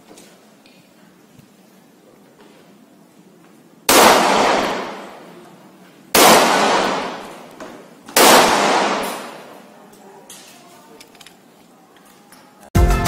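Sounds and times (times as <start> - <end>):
pistol shots echoing: 3.9 - 5.4, 6.1 - 9.7.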